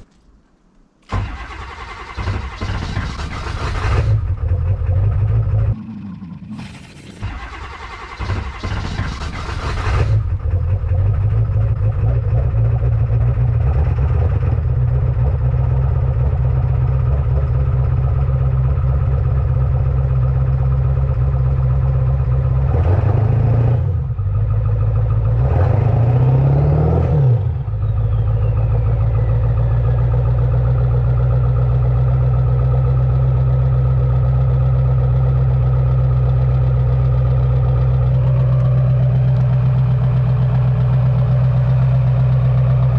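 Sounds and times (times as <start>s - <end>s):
diesel engine starting and idling: 1.0s - 42.9s
engine revving: 1.1s - 31.2s
turbo whistling: 27.6s - 30.4s.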